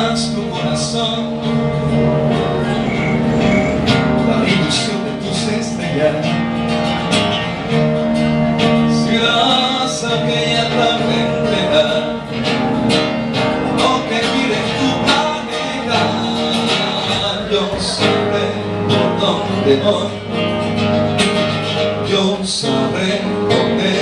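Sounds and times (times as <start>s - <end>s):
man singing into a microphone: 0.0s - 2.0s, 4.1s - 6.4s, 8.8s - 12.6s, 13.5s - 20.4s, 21.7s - 24.0s
acoustic guitar strummed: 0.0s - 24.0s.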